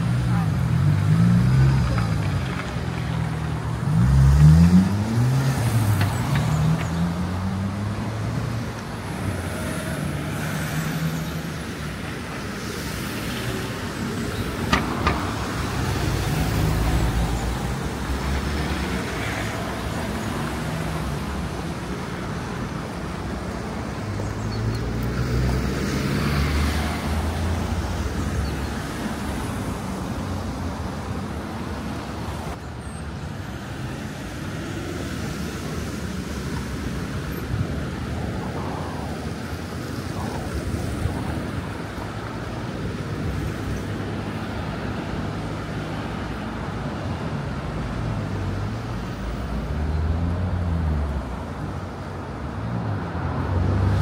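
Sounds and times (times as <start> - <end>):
vehicles passing: 0.0 - 54.0
vehicle accelerating: 3.5 - 11.2.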